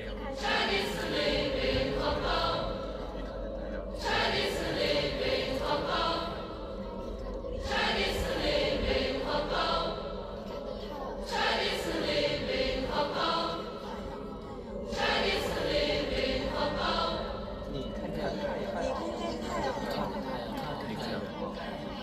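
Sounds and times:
voices chanting in unison: 0:00.0 - 0:22.0.

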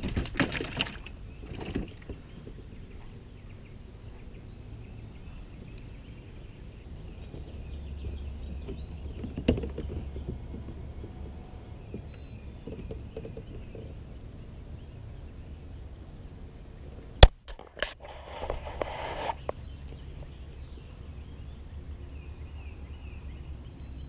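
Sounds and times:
water splashing against kayak: 0:00.0 - 0:02.3
birds chirping: 0:00.0 - 0:17.3, 0:18.5 - 0:24.0
low water noise around hull: 0:00.0 - 0:24.0.

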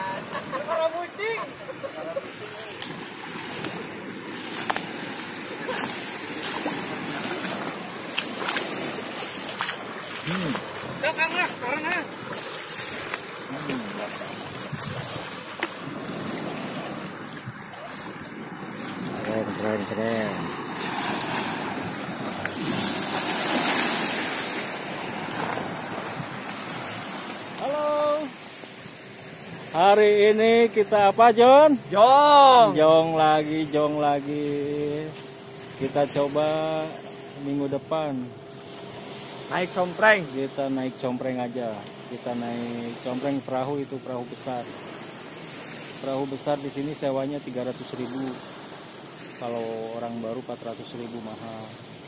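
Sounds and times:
small waves washing on shore: 0:00.0 - 0:52.0
wind buffeting microphone: 0:12.2 - 0:23.1.

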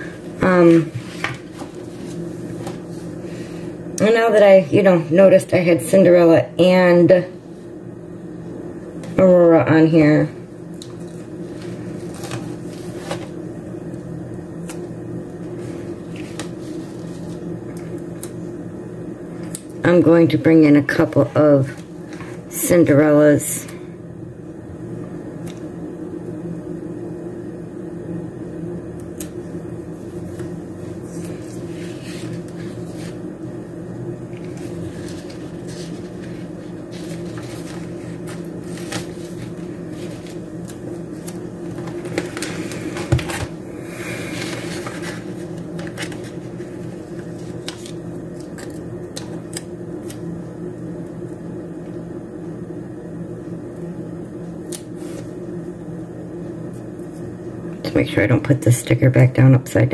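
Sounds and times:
appliance electrical hum: 0:00.0 - 0:59.9
paper stickers rustling: 0:34.4 - 0:43.5, 0:44.5 - 0:50.2.

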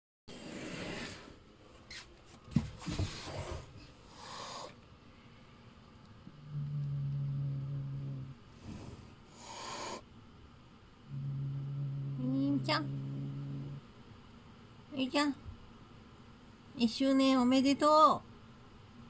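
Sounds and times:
cat hissing: 0:00.3 - 0:02.0, 0:02.8 - 0:04.8, 0:07.6 - 0:10.1
steady low tone: 0:06.2 - 0:08.9, 0:11.0 - 0:14.1.

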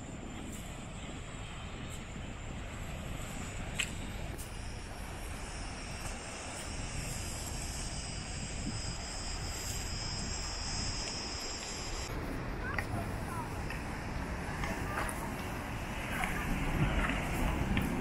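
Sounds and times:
wind rumble on microphone: 0:00.0 - 0:18.0
cicadas buzzing: 0:00.1 - 0:12.1.

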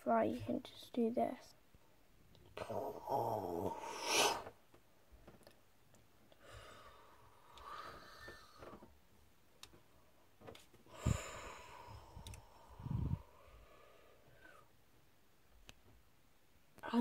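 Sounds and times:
breath-like puffs: 0:10.9 - 0:13.9.

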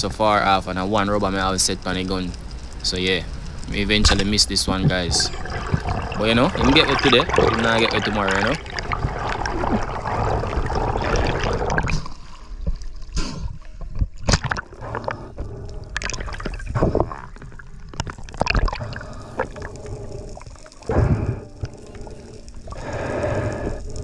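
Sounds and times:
underwater rumbling wash: 0:00.0 - 0:12.8.

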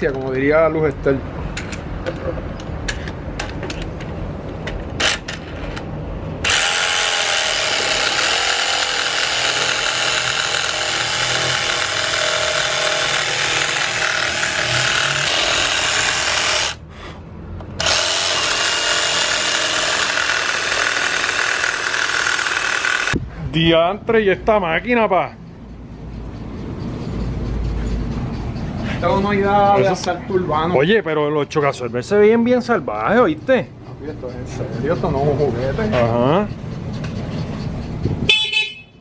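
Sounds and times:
reciprocating saw cutting wood: 0:06.4 - 0:16.8, 0:17.7 - 0:23.2.

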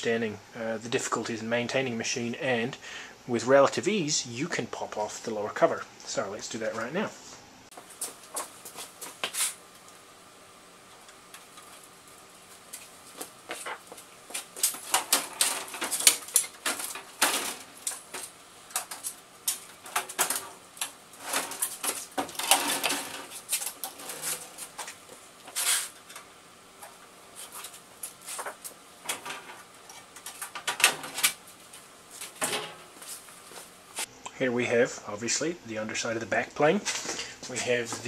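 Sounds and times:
rustling scrapes: 0:07.2 - 0:09.6, 0:21.2 - 0:26.1, 0:26.8 - 0:28.6.

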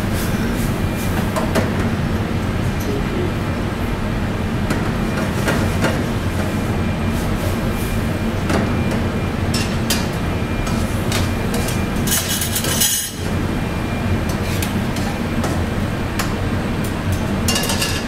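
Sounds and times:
metal utensils scraping a wok: 0:12.0 - 0:13.2.

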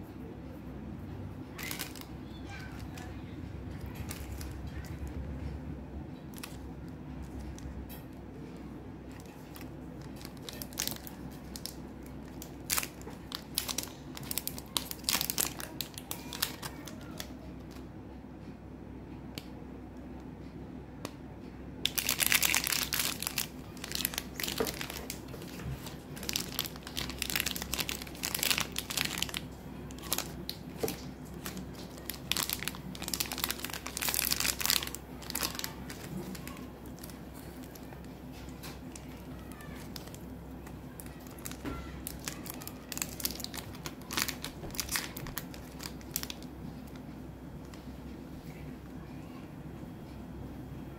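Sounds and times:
wrappers crinkling and tearing: 0:01.6 - 0:03.1, 0:03.8 - 0:05.1, 0:06.3 - 0:06.6, 0:09.1 - 0:17.8, 0:21.8 - 0:40.3, 0:40.9 - 0:47.0.

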